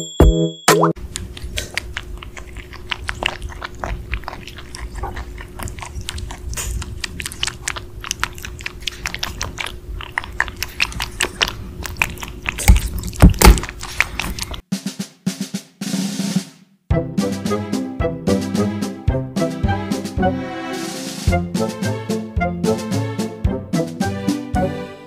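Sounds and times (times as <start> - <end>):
rabbit chewing tomatoes: 1.0 - 14.7.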